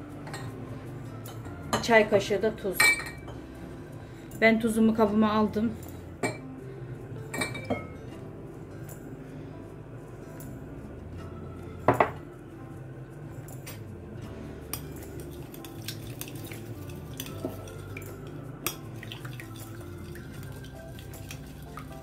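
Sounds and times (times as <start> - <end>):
egg cracking on glass bowl: 14.8 - 22.0
spoon beating eggs in bowl: 14.8 - 22.0.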